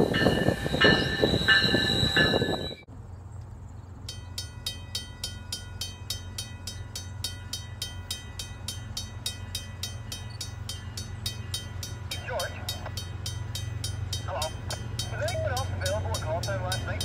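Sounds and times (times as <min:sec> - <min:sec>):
level crossing bell ringing: 0:04.1 - 0:17.0.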